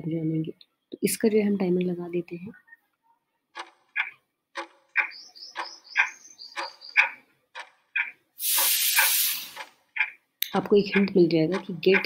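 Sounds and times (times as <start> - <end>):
clock ticking: 3.5 - 12.0
loud hiss: 8.4 - 9.6.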